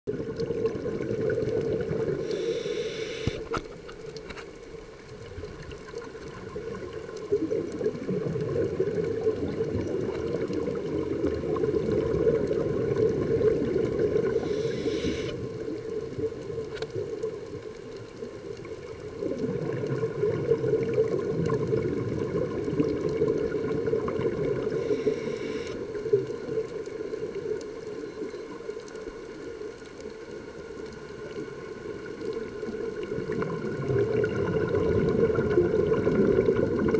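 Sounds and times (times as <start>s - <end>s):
exhaled bubbles rushing underwater: 0.1s - 4.2s, 4.9s - 36.9s
regulator inhalation hiss: 2.2s - 3.5s, 14.2s - 15.5s, 24.7s - 25.8s.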